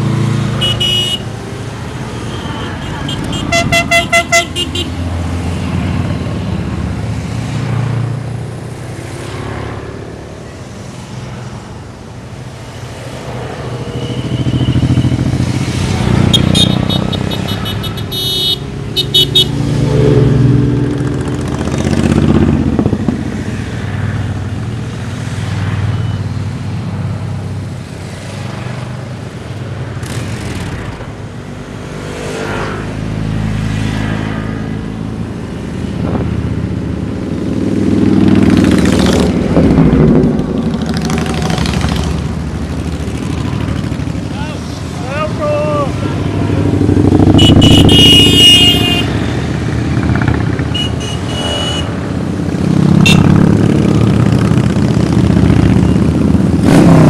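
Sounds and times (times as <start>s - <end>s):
motorcycles riding past: 0.0s - 57.0s
horn short toots: 0.6s - 1.2s, 2.3s - 5.0s, 16.3s - 19.6s, 47.3s - 49.1s, 50.7s - 51.9s, 53.0s - 53.3s.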